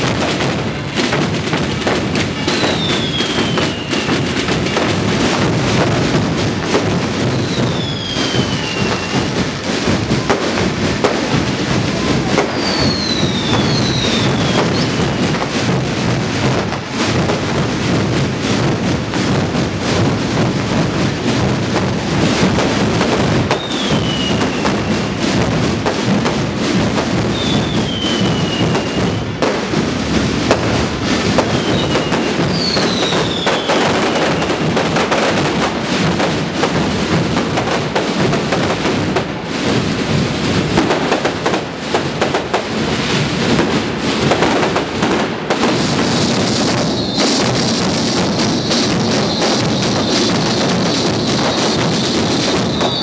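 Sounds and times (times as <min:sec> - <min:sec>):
massed drums rolling: 0:00.0 - 0:23.5, 0:24.5 - 0:53.0
fireworks going off: 0:00.0 - 0:53.0
short falling whistles: 0:02.6 - 0:04.1, 0:07.4 - 0:09.3, 0:12.5 - 0:15.3, 0:23.6 - 0:24.7, 0:27.3 - 0:29.2, 0:46.8 - 0:47.6, 0:48.3 - 0:53.0
steady high whistle: 0:02.6 - 0:04.1, 0:07.3 - 0:09.4, 0:12.5 - 0:15.3, 0:23.6 - 0:24.8, 0:27.3 - 0:29.3, 0:31.5 - 0:33.7, 0:46.7 - 0:53.0.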